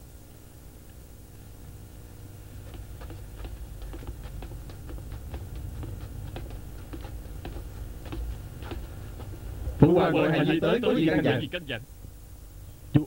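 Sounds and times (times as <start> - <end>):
low steady hum: 0.0 - 13.0
footsteps on hard floor: 2.3 - 9.8.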